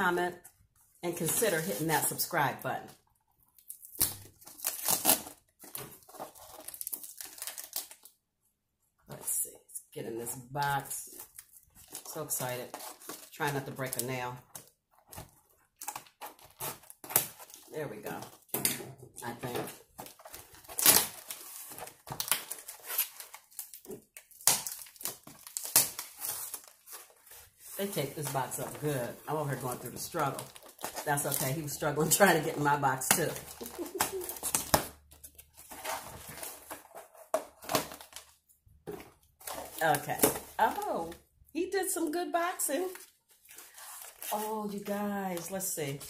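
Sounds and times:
tape crinkling: 3.4s - 8.2s, 33.0s - 38.4s.

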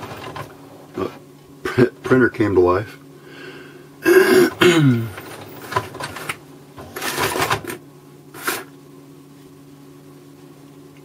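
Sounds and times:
printer mechanism whirring: 0.0s - 1.1s, 4.5s - 7.8s
steady low hum: 0.0s - 11.0s.

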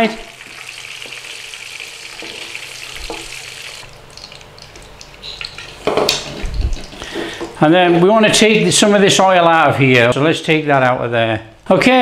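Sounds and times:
oil sizzling in a wok: 0.0s - 6.9s.

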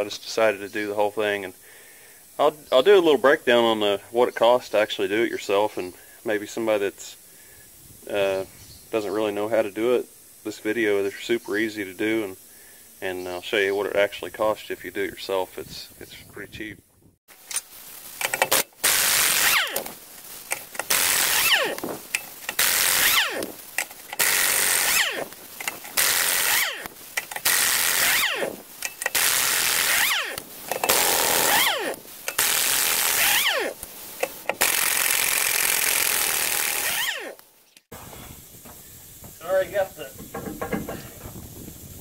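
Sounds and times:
air impact wrench hammering: 18.2s - 37.4s
impact wrench whine spinning down: 18.2s - 37.4s.

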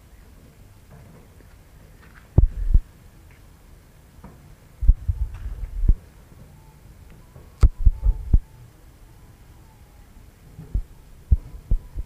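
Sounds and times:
faint steady background noise: 0.0s - 12.0s
muffled low thumps on microphone: 2.4s - 2.9s, 4.8s - 6.0s, 7.6s - 8.5s, 10.6s - 12.0s.

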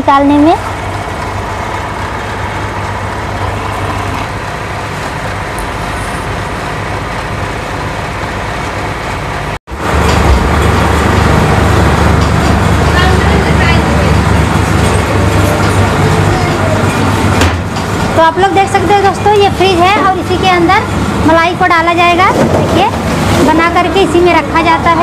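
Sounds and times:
low mechanical hum: 0.0s - 25.0s.

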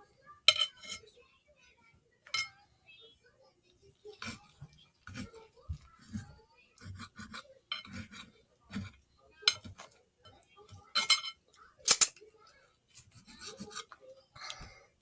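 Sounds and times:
knife sawing through bread: 6.0s - 9.0s, 13.0s - 13.9s.

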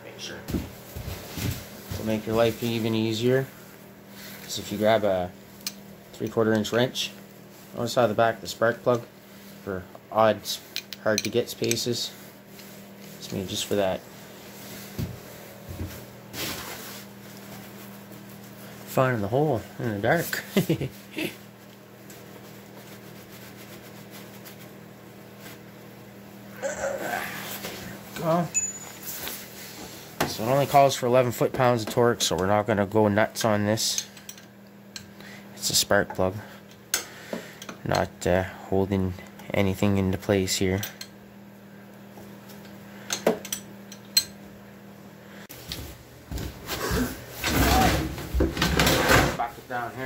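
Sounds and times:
low machine hum: 0.0s - 50.0s
shuffling handling noise: 0.4s - 5.1s, 12.0s - 19.0s, 21.5s - 25.7s, 28.7s - 30.9s.

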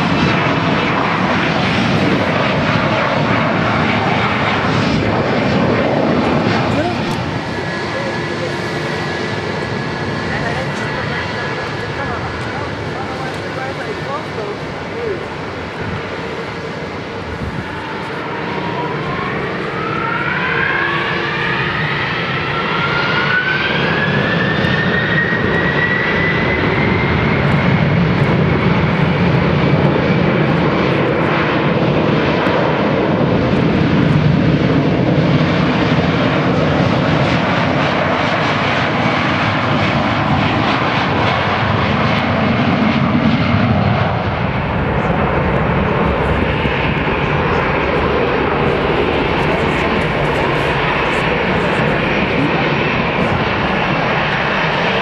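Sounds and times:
jet engines roaring on takeoff: 0.0s - 55.0s.

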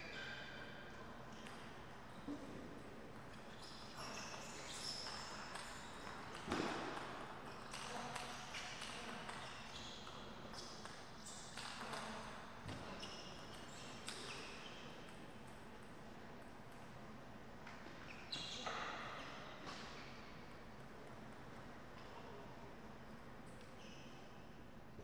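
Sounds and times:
sports shoes squeaking on court: 3.3s - 8.3s, 17.8s - 20.1s.

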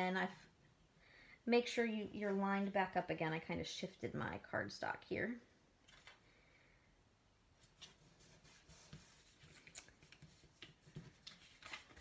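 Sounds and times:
cardstock rustling and ticking: 8.9s - 12.0s.

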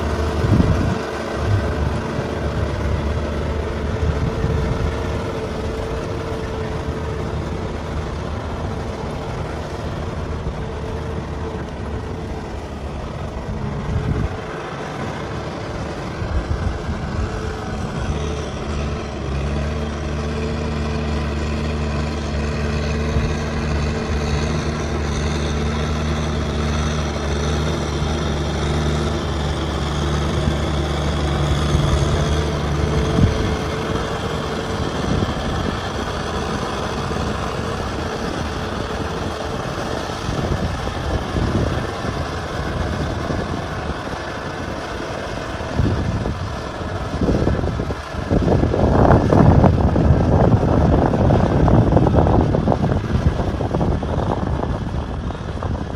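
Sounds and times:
tractor diesel engine running: 0.0s - 55.9s.

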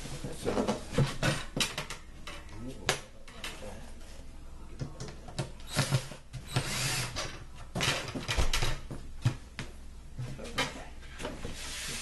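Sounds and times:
cordless drill driving screws: 5.7s - 7.2s.

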